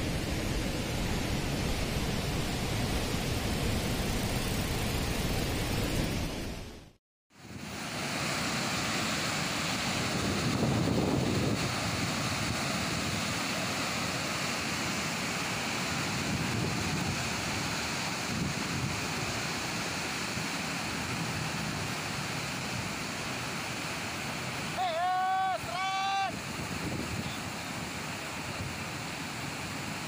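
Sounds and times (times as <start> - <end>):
water roaring through sluice gates: 7.4 - 30.0
wind buffeting microphone: 9.9 - 13.4, 26.4 - 27.5.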